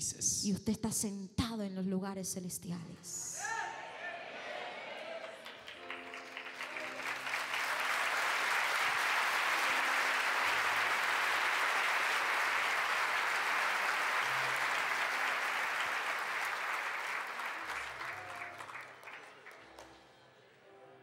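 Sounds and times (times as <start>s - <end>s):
congregation applauding: 4.4s - 20.2s.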